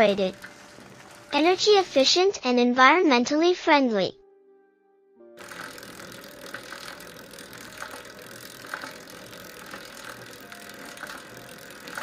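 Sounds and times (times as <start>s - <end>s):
bicycle tyres hissing on pavement: 0.0s - 1.6s, 5.4s - 12.0s.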